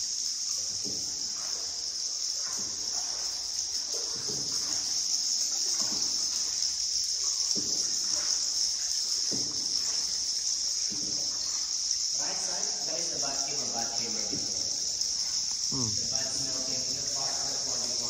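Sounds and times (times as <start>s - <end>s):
high-pitched insect chorus: 0.0s - 18.0s
paddle splashing water: 0.0s - 18.0s.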